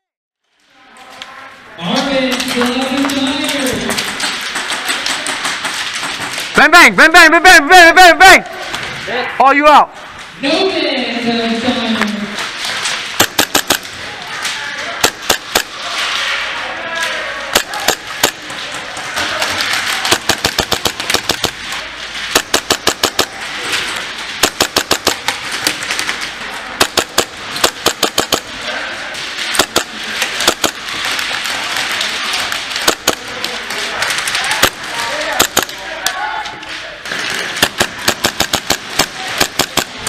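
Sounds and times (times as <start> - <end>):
airsoft pistol shots: 13.2 - 13.9, 15.0 - 15.8, 17.5 - 18.4, 20.1 - 21.6, 22.3 - 23.3, 24.4 - 25.4, 26.8 - 28.6, 29.5 - 30.8, 32.8 - 33.2, 34.6 - 35.8, 37.6 - 40.0.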